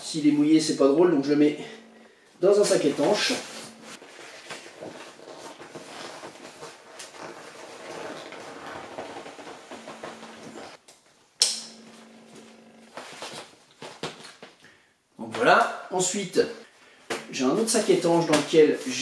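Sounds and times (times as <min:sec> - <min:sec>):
waterproof fabric crinkling: 0:03.0 - 0:10.8.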